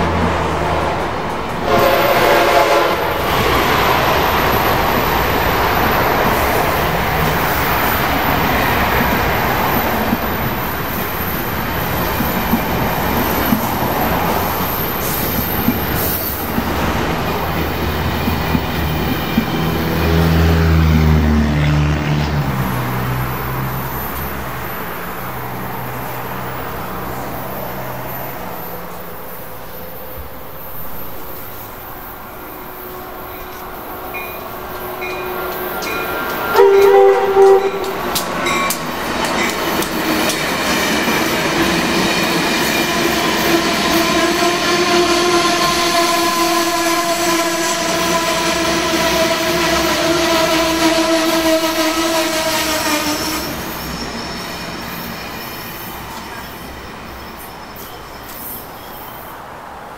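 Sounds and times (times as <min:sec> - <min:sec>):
train passing at speed: 0:00.0 - 0:59.9
wheels clicking over rail joints: 0:34.1 - 0:44.3.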